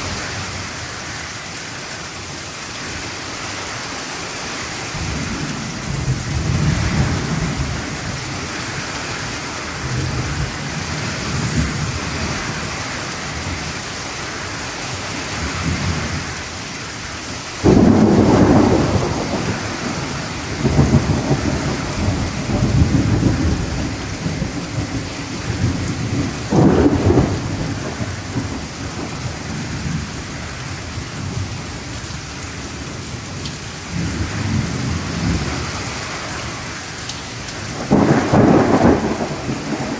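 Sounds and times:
heavy rain on trees: 0:00.0 - 0:39.9
loud thunderclap: 0:17.6 - 0:30.0, 0:37.7 - 0:39.9
thunder rumbling: 0:17.6 - 0:31.5, 0:37.6 - 0:39.9.

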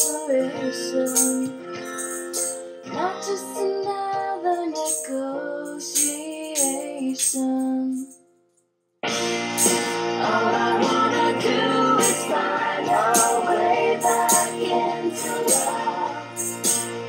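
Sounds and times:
tambourine jingling: 0:00.0 - 0:00.4, 0:01.0 - 0:02.8, 0:04.8 - 0:08.5, 0:09.2 - 0:17.0
woman singing pop ballad: 0:00.0 - 0:01.6, 0:02.9 - 0:08.1, 0:10.2 - 0:16.4.

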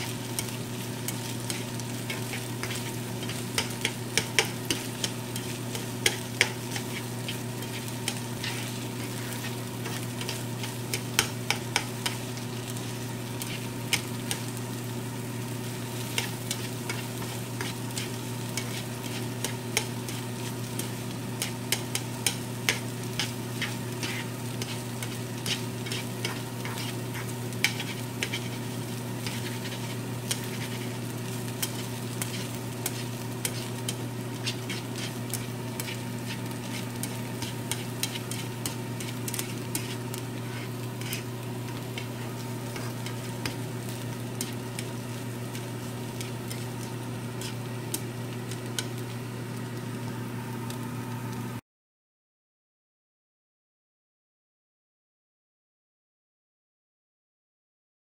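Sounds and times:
chopsticks scraping a pan: 0:00.0 - 0:14.6, 0:15.8 - 0:49.0
steady low hum: 0:00.0 - 0:51.3
food sizzling in a skillet: 0:00.0 - 0:51.6.

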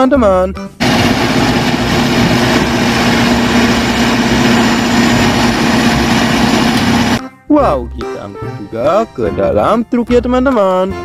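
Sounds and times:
bulldozer engine drone: 0:00.8 - 0:07.2.

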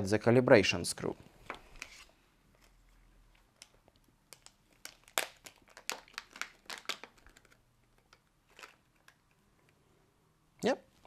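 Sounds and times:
plastic bag crinkling: 0:02.7 - 0:09.4.

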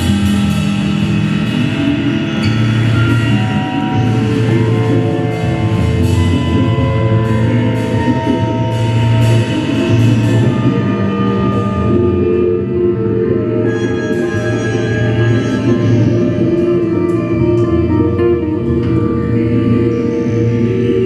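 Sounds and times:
drum kit with cymbal hits: 0:00.0 - 0:12.6.

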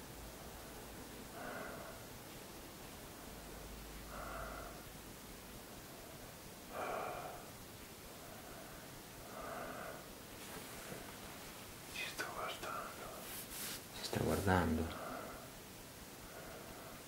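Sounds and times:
man breathing slowly: 0:01.3 - 0:02.2, 0:04.0 - 0:05.0, 0:05.7 - 0:11.1, 0:14.9 - 0:15.6, 0:16.2 - 0:17.0.

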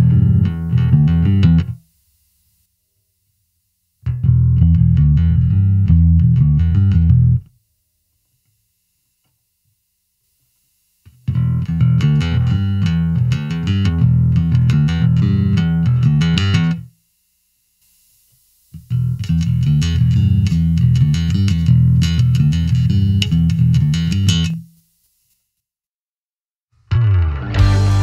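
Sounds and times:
plucked bass guitar phrase: 0:00.0 - 0:01.8, 0:04.1 - 0:07.4, 0:26.9 - 0:28.0.

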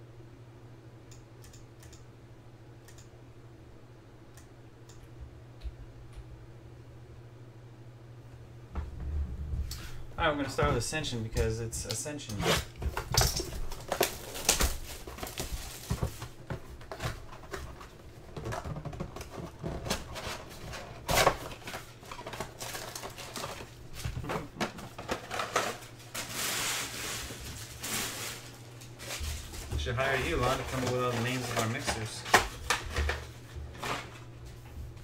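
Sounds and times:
foil wrappers crinkling: 0:12.8 - 0:34.4.

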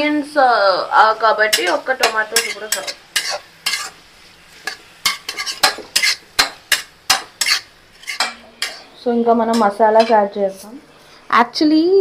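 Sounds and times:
faint frying sizzle: 0:00.0 - 0:12.0
metal spatula scraping pan: 0:01.4 - 0:04.0, 0:04.6 - 0:10.2.

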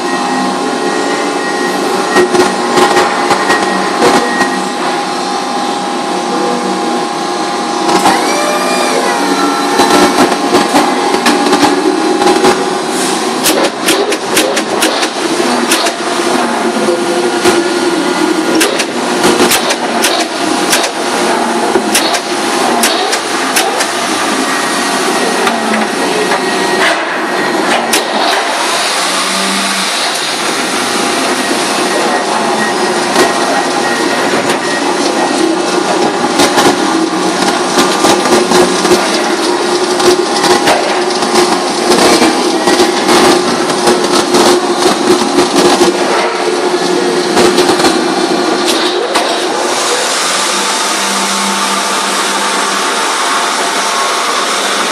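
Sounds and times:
paper-trimming machinery running: 0:00.0 - 0:54.9
paper stacks clacking and knocking: 0:13.4 - 0:16.4, 0:33.1 - 0:49.9.

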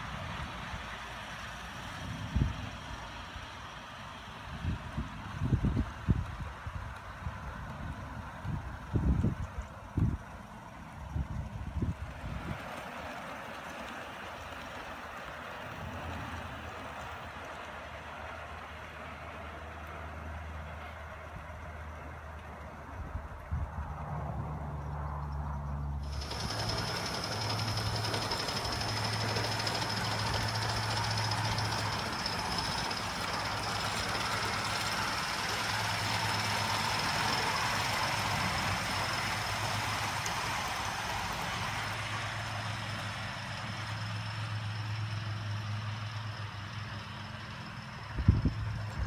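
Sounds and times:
steam hissing: 0:26.0 - 0:46.2.

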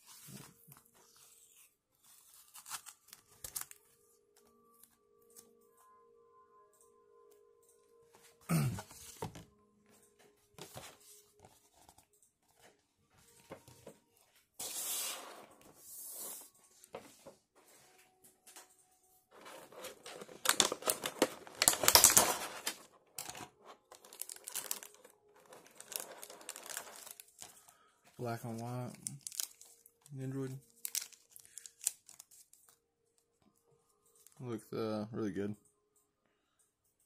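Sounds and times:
plastic packaging crinkling: 0:19.3 - 0:32.8.

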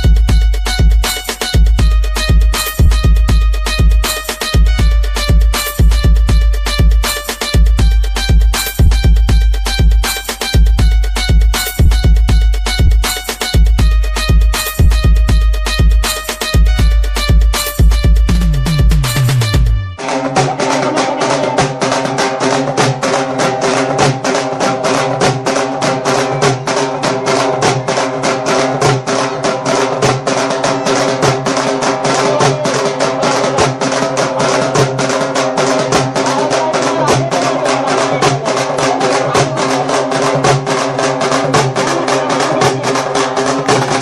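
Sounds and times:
sustained instrumental tones: 0:00.0 - 0:20.3
fast drum beat: 0:00.0 - 0:44.0.

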